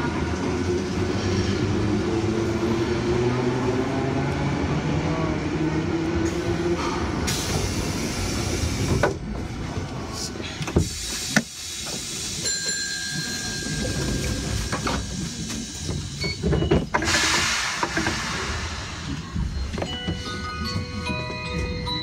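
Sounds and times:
tram equipment rumble: 0.0 - 22.0
air hiss burst: 17.0 - 19.3.

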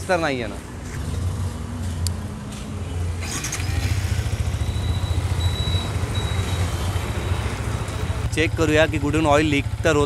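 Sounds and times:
motorcycle engine starting and idling: 3.0 - 10.0.

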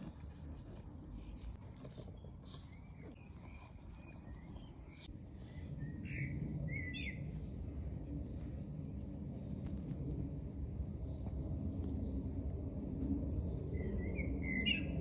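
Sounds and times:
small birds chirping: 1.2 - 5.1.

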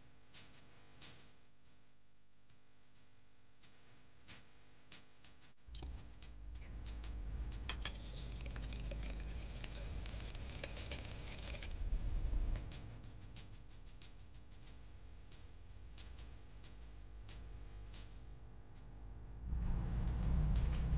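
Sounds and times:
whisk beating in glass bowl: 7.7 - 11.8.

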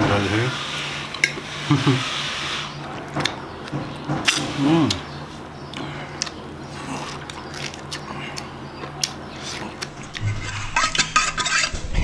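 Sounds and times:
person chewing wetly: 5.6 - 10.4
hand scraping in metal bowl: 10.2 - 12.0.

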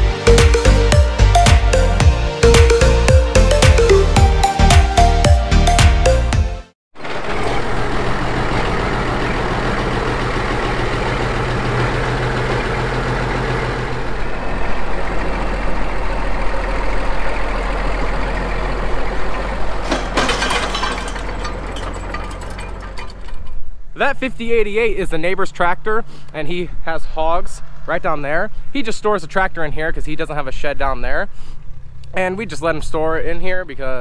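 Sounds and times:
tractor diesel engine running: 7.0 - 23.7.

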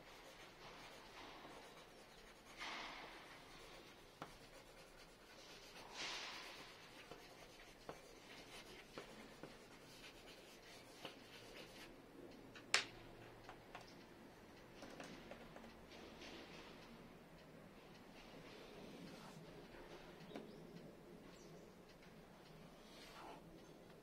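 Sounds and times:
pencil scratching on paper: 0.0 - 11.9
light pencil ticks: 3.5 - 14.8, 16.8 - 24.0.

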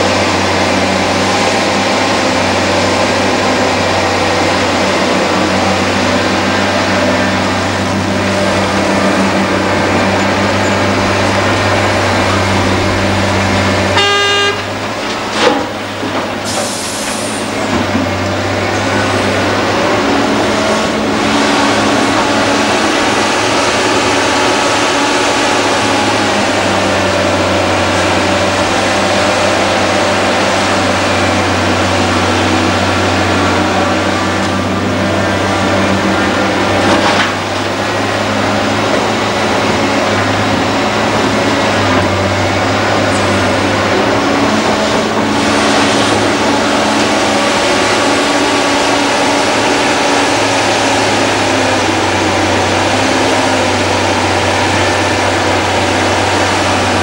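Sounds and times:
excavator and truck engines: 0.0 - 57.0
excavator digging soil: 0.0 - 57.0
loud impact: 8.6 - 16.5.

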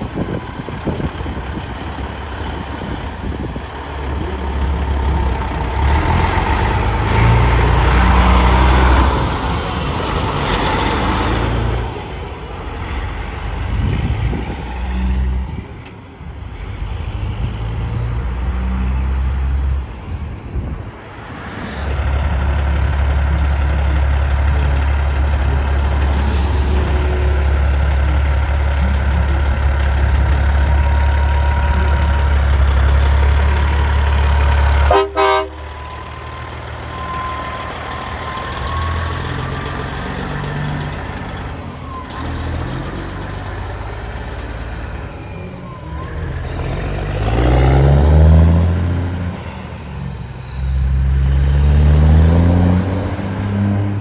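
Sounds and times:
diesel truck engine: 0.0 - 54.0
truck horn toot: 34.8 - 36.1.

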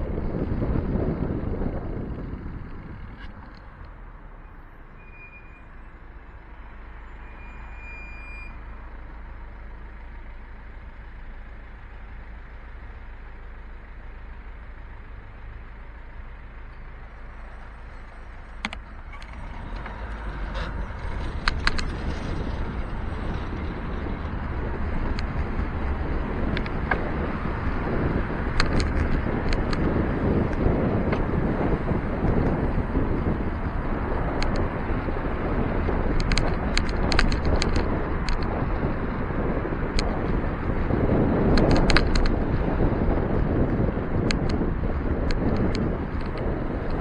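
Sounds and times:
city traffic rumble: 0.0 - 47.0
wind and road noise: 0.0 - 47.0
sharp clicks: 18.6 - 20.0, 28.6 - 29.9, 36.2 - 38.5, 41.5 - 42.4.

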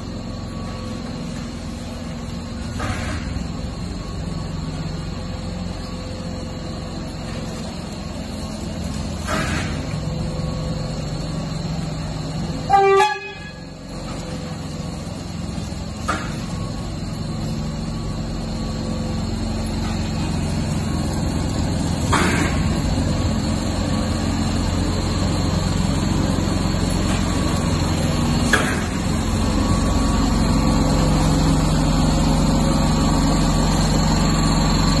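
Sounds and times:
low hum of moving train: 0.0 - 35.0
subway car horn toot: 12.6 - 13.9.

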